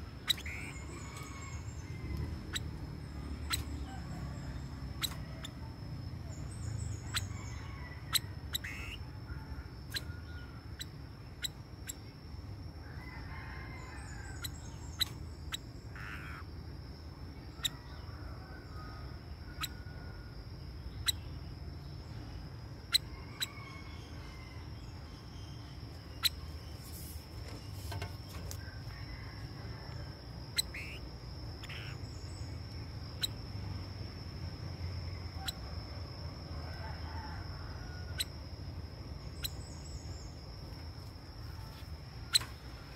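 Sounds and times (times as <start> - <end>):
bird calls: 0.0 - 4.4, 6.3 - 12.0, 13.7 - 16.5, 30.5 - 33.4.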